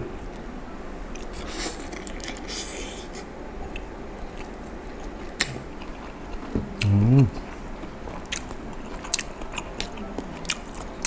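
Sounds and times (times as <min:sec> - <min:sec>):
person chewing: 0:01.1 - 0:11.0
person humming mm: 0:06.8 - 0:07.4.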